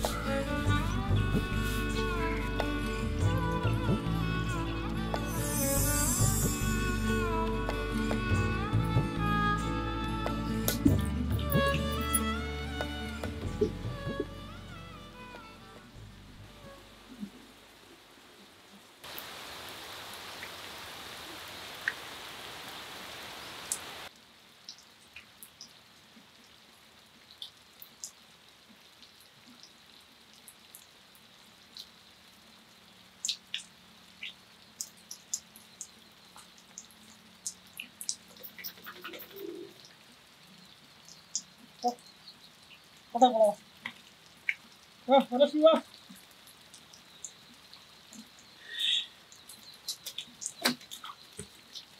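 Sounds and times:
heavy rain hiss: 0.0s - 24.6s, 30.0s - 50.9s
light rain drops and drips: 0.0s - 51.9s.

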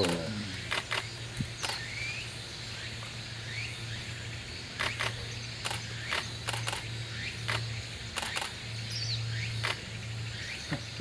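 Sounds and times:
camera shutters clicking: 0.7s - 1.8s, 4.8s - 6.8s.

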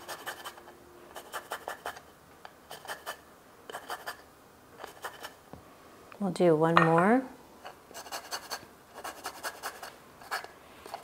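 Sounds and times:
lime rasping on grater: 0.0s - 2.0s, 7.9s - 11.0s.

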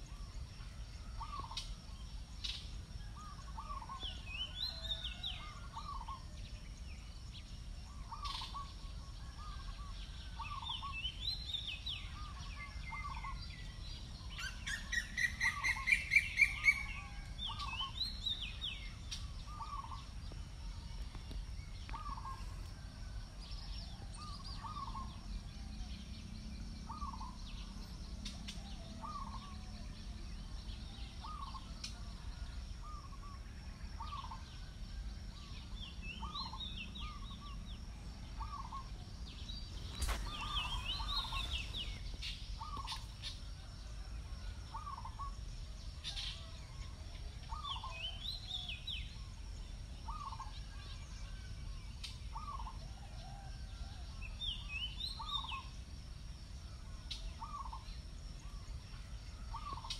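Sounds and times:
low background noise: 0.0s - 59.9s
bird chirping trills: 7.9s - 20.4s, 21.0s - 22.9s, 23.5s - 33.4s, 34.0s - 43.6s, 47.4s - 50.7s, 58.5s - 59.9s.

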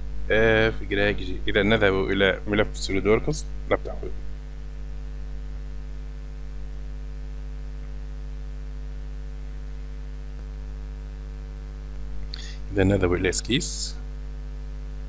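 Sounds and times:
electrical mains hum: 0.0s - 15.0s
faint hiss: 12.2s - 14.1s.

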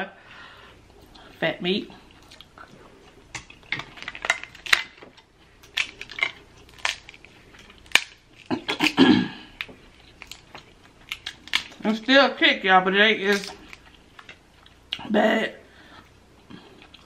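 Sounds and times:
crab shells cracking: 3.2s - 12.1s, 13.2s - 15.0s.

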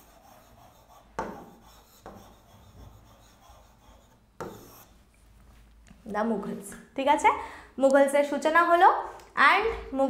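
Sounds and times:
pen scratching on writing board: 0.0s - 5.0s.

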